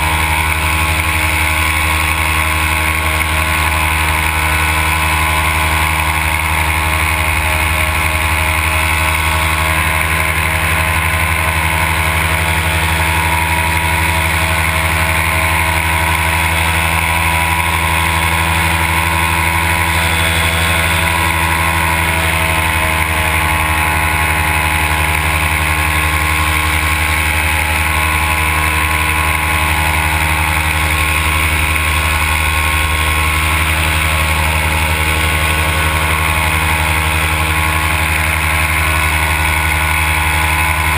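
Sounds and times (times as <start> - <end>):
paramotor engine droning: 0.0 - 40.9.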